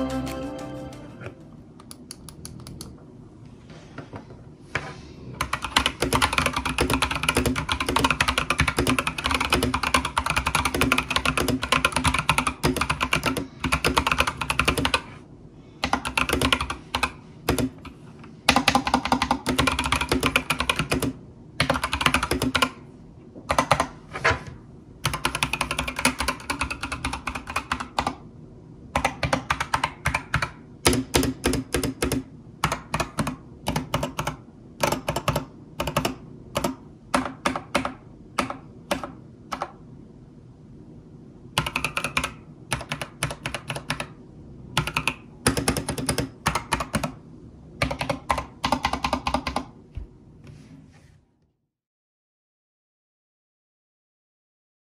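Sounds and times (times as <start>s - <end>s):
mechanical keyboard typing: 5.4s - 15.1s, 15.8s - 22.8s, 23.5s - 23.9s, 25.0s - 28.2s, 29.0s - 39.8s, 41.6s - 44.2s, 44.8s - 47.2s, 47.8s - 49.8s.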